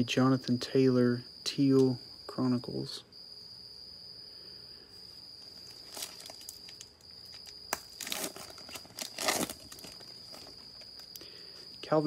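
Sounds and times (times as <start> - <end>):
cricket trilling: 0.0 - 12.0
foil wrapper crinkling and tearing: 5.6 - 11.1.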